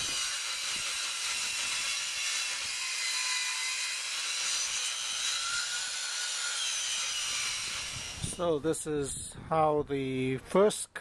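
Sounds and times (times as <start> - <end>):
table saw cutting wood: 0.0 - 8.4
faint saw whine: 0.0 - 8.9.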